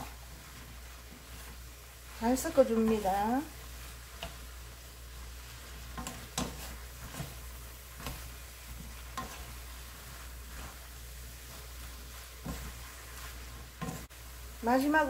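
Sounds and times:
faint sizzle: 0.0 - 15.0
spatula stirring food in pan: 0.0 - 15.0
spatula scraping and tapping pan: 2.3 - 14.1.

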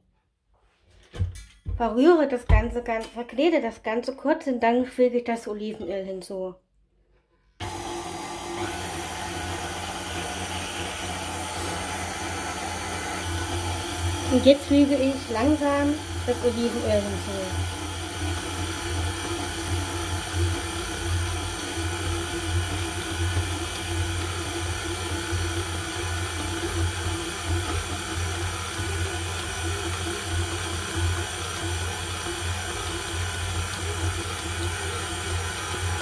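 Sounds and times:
low motor hum: 7.6 - 36.0
stand mixer kneading dough: 7.6 - 36.0.

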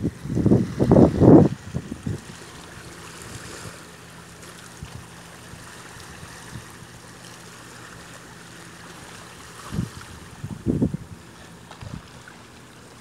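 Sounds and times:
wind buffeting microphone: 0.0 - 3.8, 9.6 - 12.2
small waves lapping on pebbles: 0.1 - 10.5.

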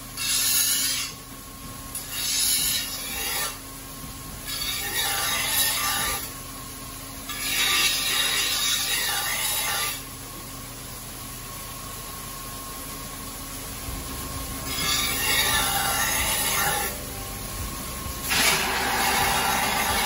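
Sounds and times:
knife grinding on wheel: 0.2 - 1.2, 2.0 - 3.6, 4.4 - 6.4, 7.3 - 10.0, 14.6 - 17.0, 18.2 - 20.0
grinding wheel humming: 13.7 - 20.0.

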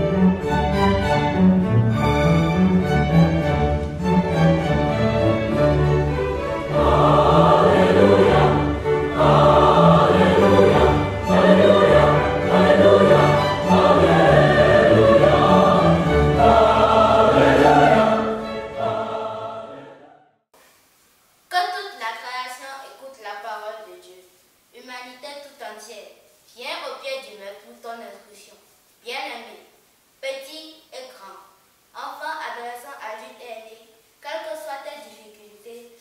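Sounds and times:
orchestral music: 0.0 - 20.0
choir singing: 0.0 - 20.4.

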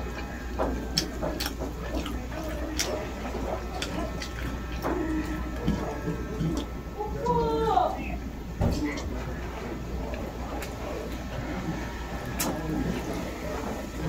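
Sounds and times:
wet chewing: 0.0 - 7.3, 9.0 - 14.0
voiced murmur: 0.0 - 14.0.

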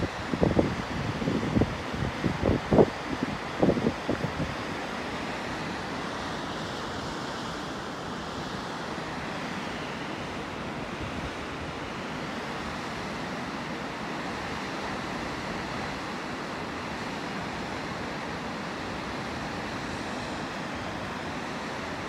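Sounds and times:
wind rumble on microphone: 0.0 - 4.6
waterfall rushing: 4.4 - 22.0.

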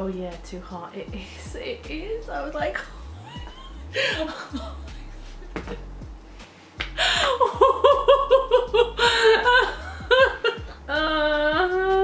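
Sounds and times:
woman laughing: 3.0 - 6.0, 7.0 - 11.4.

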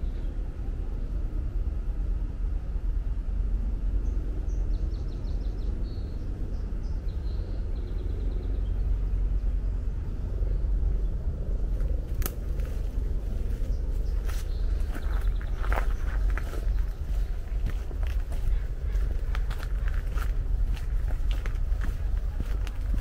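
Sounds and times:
steady low rumble: 0.0 - 23.0
footsteps on a path: 11.7 - 23.0.

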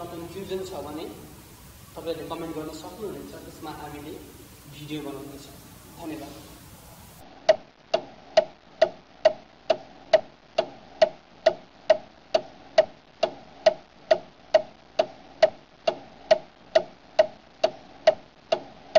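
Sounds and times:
clock ticking: 7.2 - 18.9.

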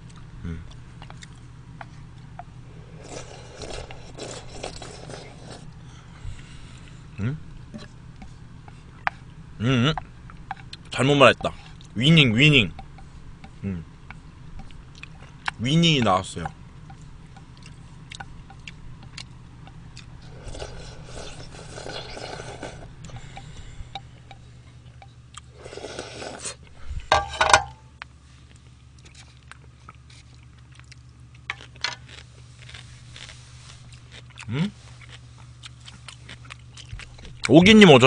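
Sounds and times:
chewing: 0.0 - 1.5, 3.0 - 5.7, 13.4 - 15.6, 16.8 - 26.7, 28.5 - 37.5
person humming: 0.4 - 0.7, 7.2 - 7.4, 13.6 - 13.9.

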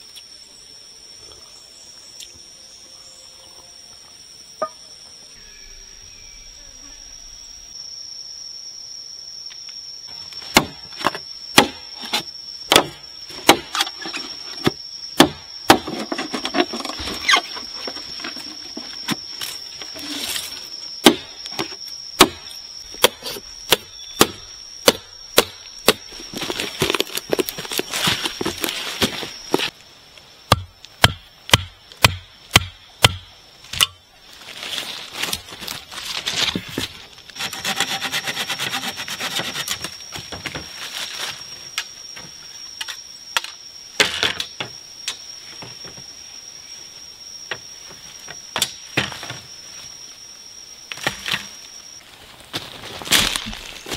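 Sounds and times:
high insect drone: 0.0 - 53.9
blade chopping bamboo: 11.6 - 13.9, 23.0 - 29.1
dry leaves rustling: 26.0 - 29.7, 34.2 - 37.3, 40.6 - 41.6, 52.0 - 53.9.

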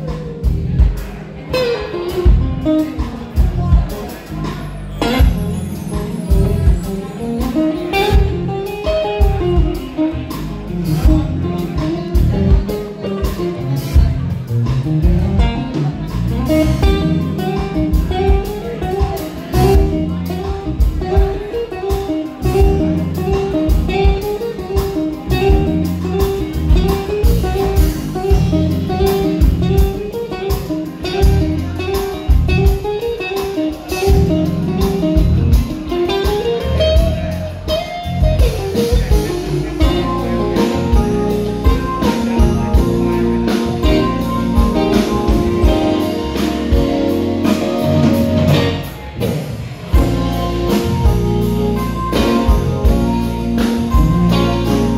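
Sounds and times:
guitar melody: 0.0 - 54.9
live blues band playing: 0.0 - 54.9.

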